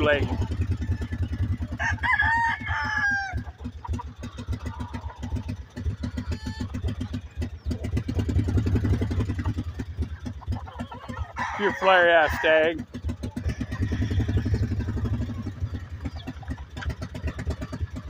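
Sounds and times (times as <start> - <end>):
rooster crowing: 0.8 - 3.6, 6.1 - 6.8, 11.0 - 12.8, 13.4 - 14.9
small engine putter: 12.8 - 18.0.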